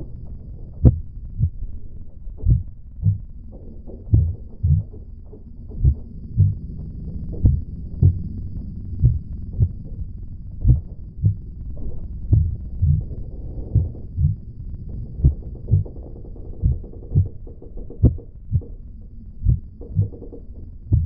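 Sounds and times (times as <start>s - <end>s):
steady low drone: 0.0s - 21.0s
heartbeat thumps: 0.8s - 1.7s, 2.4s - 3.3s, 3.9s - 5.0s, 5.7s - 10.0s, 10.6s - 16.0s, 16.6s - 17.4s, 18.0s - 18.7s, 19.4s - 21.0s.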